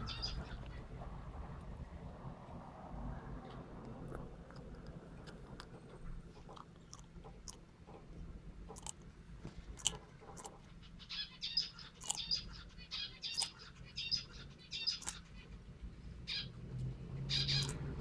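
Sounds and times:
eggshell crunching: 6.4 - 7.7, 8.6 - 10.6, 11.8 - 12.5.

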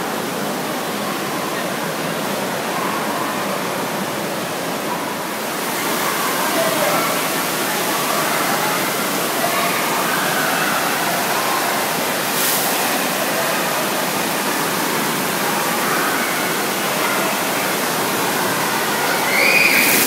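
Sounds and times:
rushing water: 0.0 - 20.0.

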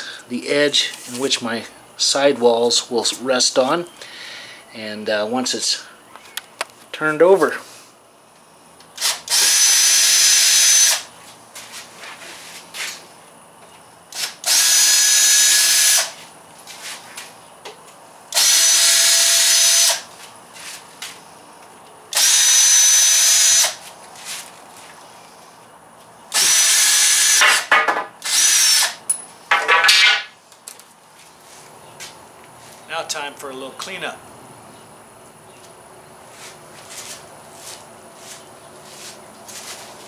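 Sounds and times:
cordless drill whining: 9.0 - 11.1, 14.2 - 16.1, 18.4 - 20.0, 22.1 - 23.8, 26.4 - 27.4, 28.2 - 29.0.

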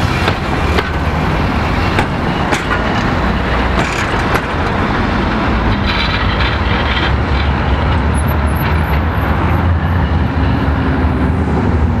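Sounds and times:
tram running on track: 0.0 - 12.0
steady low rumble: 0.1 - 8.0.

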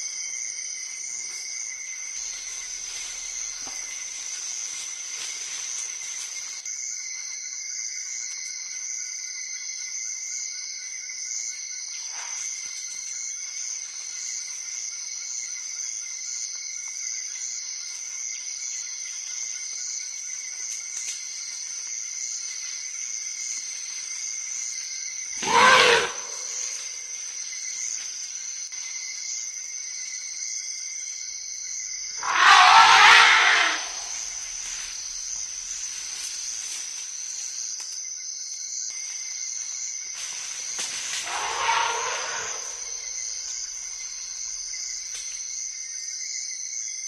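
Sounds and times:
forest insects chorus: 0.0 - 47.0
elephant call: 25.4 - 26.8, 32.2 - 34.4, 41.2 - 43.1.

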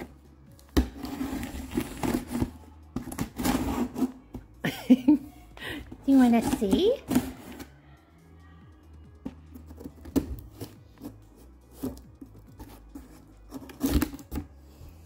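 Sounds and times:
quiet background music: 0.0 - 15.0
cardboard box scraping and rustling: 0.9 - 2.6.

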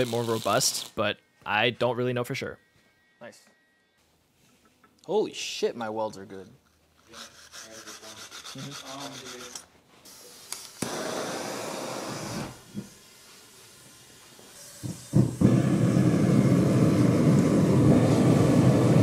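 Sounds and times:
gas torch hissing: 0.0 - 1.0, 10.1 - 19.0
burners igniting with whoomp: 10.8 - 12.6, 14.8 - 19.0
forge burners roaring: 14.3 - 19.0.

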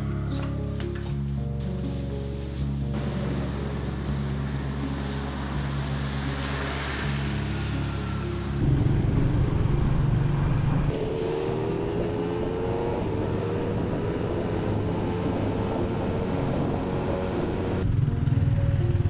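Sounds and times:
road noise: 0.0 - 19.0
vehicle engine running: 2.9 - 19.0.

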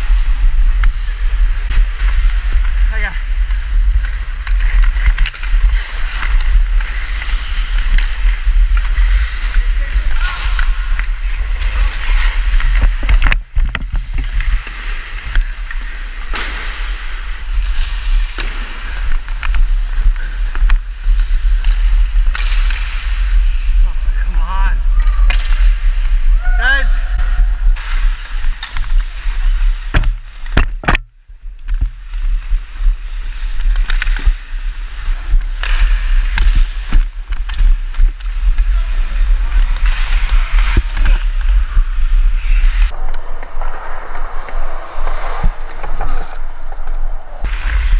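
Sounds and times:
skate blades scraping ice: 0.0 - 30.6, 31.4 - 43.1, 44.0 - 47.9
wind rumble on microphone: 0.0 - 47.9
hockey stick clicking on puck: 27.8 - 32.5.

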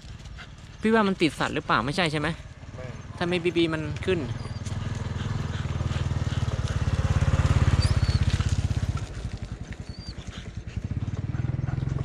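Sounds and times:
small engine puttering: 2.5 - 12.0.

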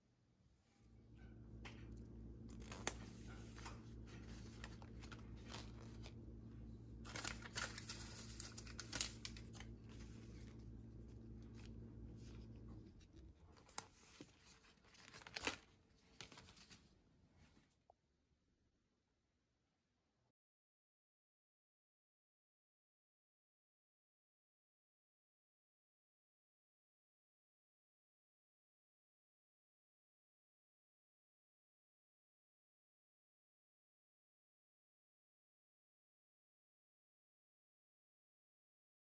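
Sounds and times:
steady low hum: 0.5 - 14.8
paper bags rustling: 2.5 - 6.2, 7.0 - 12.7, 13.4 - 17.0.

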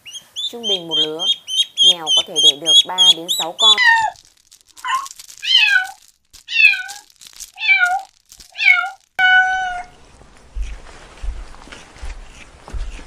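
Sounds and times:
cat meowing: 3.6 - 4.2, 4.8 - 7.0, 7.6 - 10.0.

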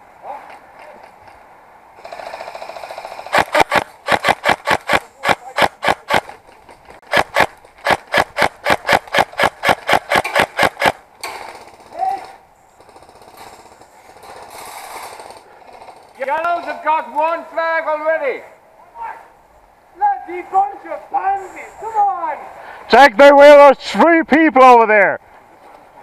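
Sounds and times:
airsoft rifle firing single shots: 3.3 - 6.3, 7.1 - 11.0.

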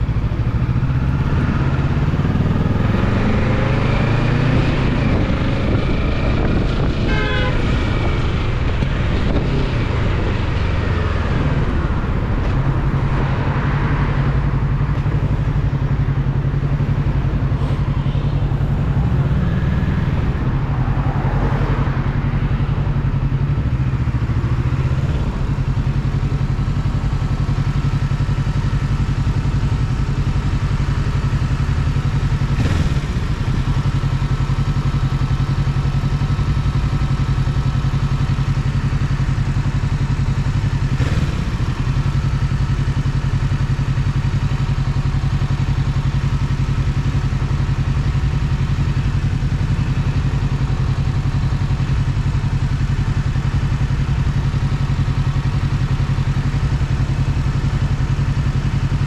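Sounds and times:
motorcycle engine idling: 0.0 - 59.0.

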